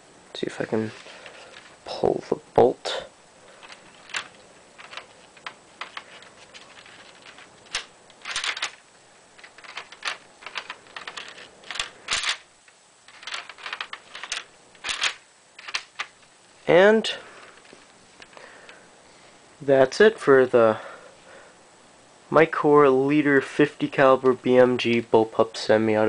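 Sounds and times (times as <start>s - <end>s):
plastic bricks clicking and rattling: 3.6s - 8.8s, 9.4s - 12.5s, 13.1s - 16.2s.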